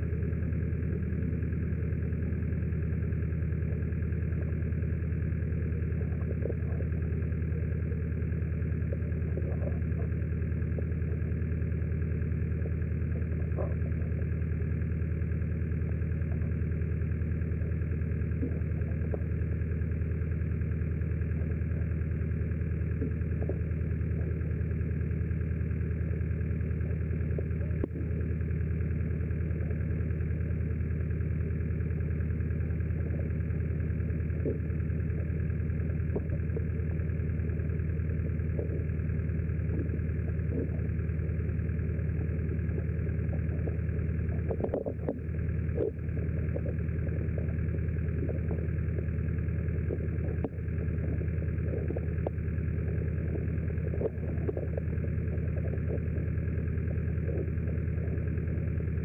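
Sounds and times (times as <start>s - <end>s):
boat engine idling hum: 0.0s - 59.0s
faint clicks: 36.0s - 56.3s.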